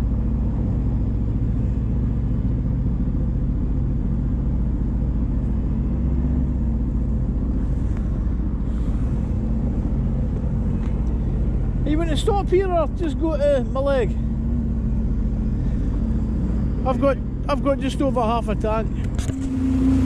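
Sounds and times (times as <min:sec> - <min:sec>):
jet ski engine idling: 0:07.2 - 0:19.8.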